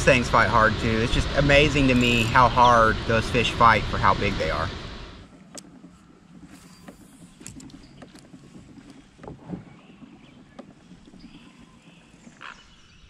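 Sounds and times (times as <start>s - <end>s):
quiet water: 0.0s - 13.0s
kayak knocks and clicks: 5.2s - 12.7s.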